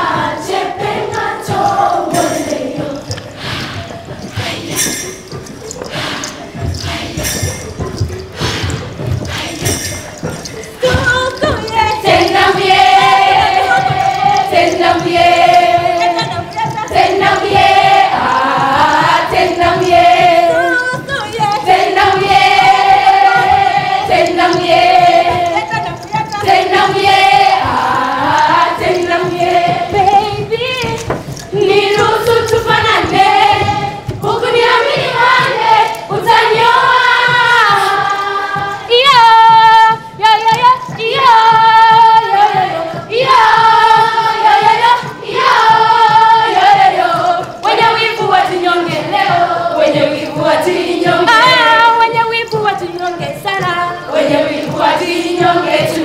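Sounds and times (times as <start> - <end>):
young voices singing in chorus: 0.0 - 56.0.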